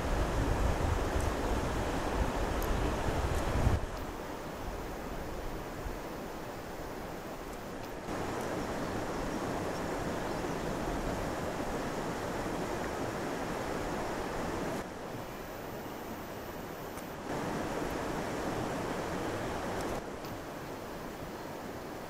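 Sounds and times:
wind rushing on microphone: 0.0 - 15.8.

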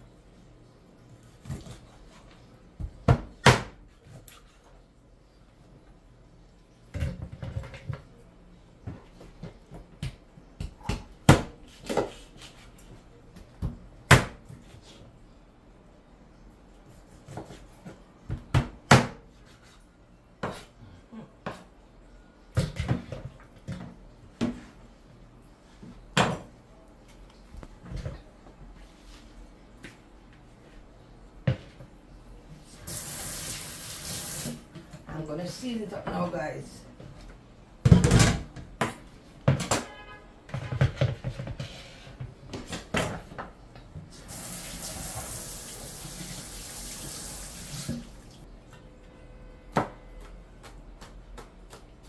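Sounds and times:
kitchen tap running: 32.8 - 34.7, 44.2 - 48.4.

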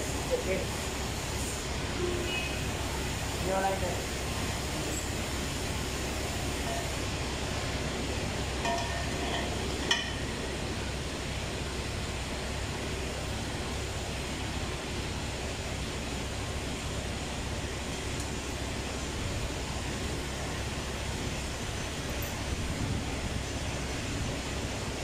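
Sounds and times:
workshop background noise: 0.0 - 10.8
light metallic clinks: 8.6 - 10.3, 22.0 - 22.5.

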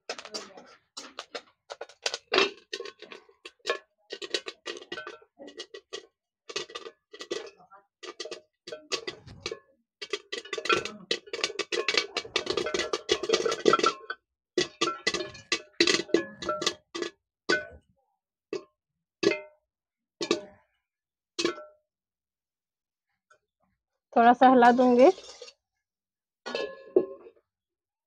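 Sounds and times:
corn kernels popping under lid: 0.0 - 17.1.

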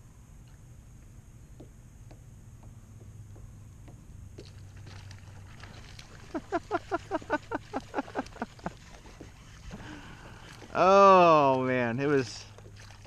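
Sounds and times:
faint ticks: 0.4 - 6.1
fishing reel drag pulsing: 4.4 - 13.0.

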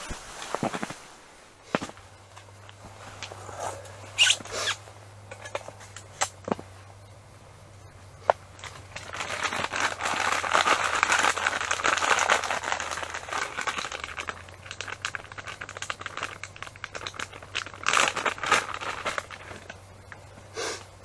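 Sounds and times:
plastic packets crinkling: 8.6 - 20.3.

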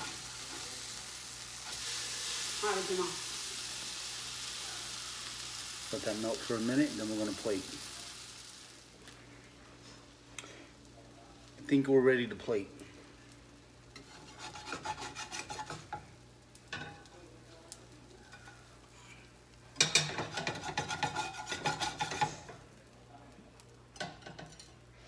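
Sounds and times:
metal spatula scraping frying pan: 14.0 - 16.1, 19.8 - 22.5.

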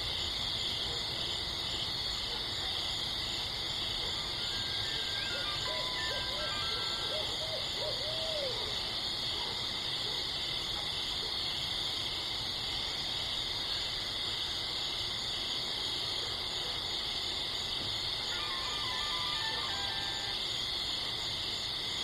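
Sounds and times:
owl hooting: 4.4 - 8.7, 18.3 - 20.4.

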